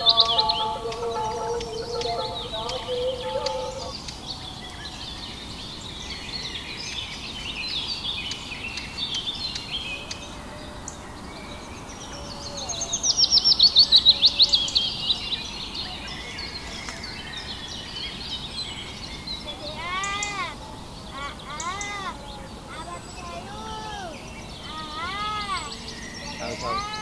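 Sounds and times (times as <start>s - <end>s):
bird sharp descending notes: 0.0s - 4.0s
birds chirping and calling: 0.0s - 27.0s.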